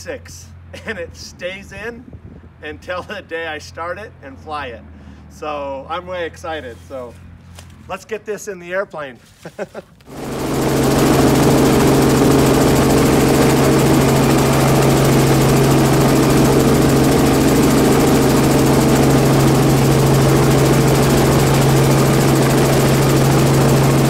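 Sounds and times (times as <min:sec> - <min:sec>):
light aircraft engine humming: 0:09.5 - 0:24.0.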